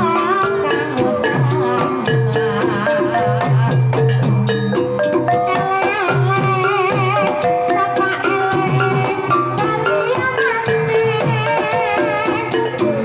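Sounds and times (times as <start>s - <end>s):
woman singing: 0.0s - 2.3s, 5.3s - 13.0s.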